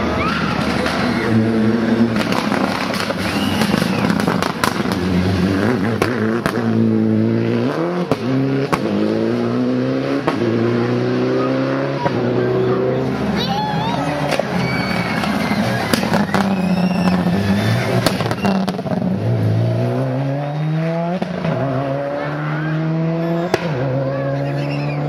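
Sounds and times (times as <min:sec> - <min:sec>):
rally car engine revving: 0:00.0 - 0:25.0
exhaust pops and crackles: 0:02.1 - 0:05.2, 0:05.8 - 0:06.8, 0:14.3 - 0:17.3, 0:17.9 - 0:19.0.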